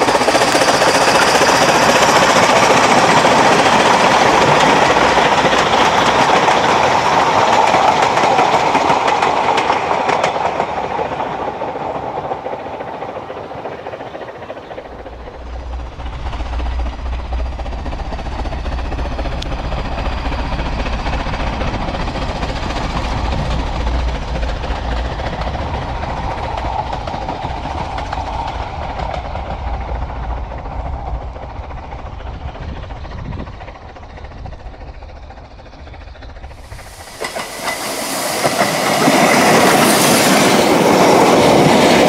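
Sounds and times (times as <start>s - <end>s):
steam locomotive working: 0.0s - 42.0s
train wheels on rails: 0.0s - 42.0s.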